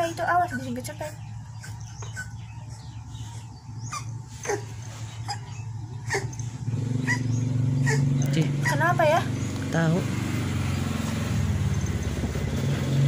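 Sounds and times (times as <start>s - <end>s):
steady low hum: 0.0s - 12.4s
cat crying: 3.8s - 8.9s.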